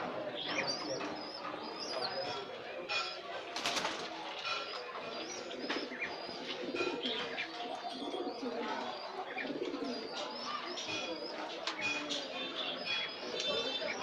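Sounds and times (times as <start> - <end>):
small birds chirping and whistling: 0.3 - 2.5, 4.4 - 14.0
pigeons cooing: 3.9 - 14.0.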